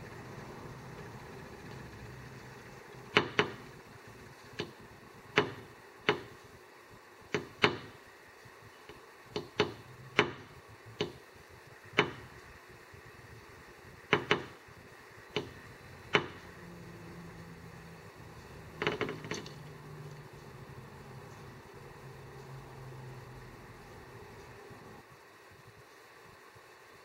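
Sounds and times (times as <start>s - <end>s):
bird tapping bill on window: 3.1s - 3.6s, 4.5s - 6.4s, 7.3s - 8.0s, 8.8s - 11.2s, 11.9s - 12.3s, 14.1s - 14.6s, 15.3s - 16.6s, 18.7s - 19.6s.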